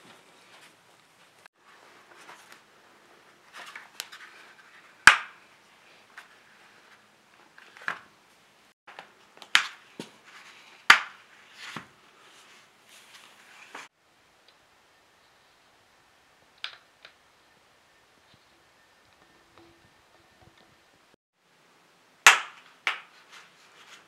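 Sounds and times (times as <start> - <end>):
handling rustles: 0.0 - 5.1, 9.8 - 13.9.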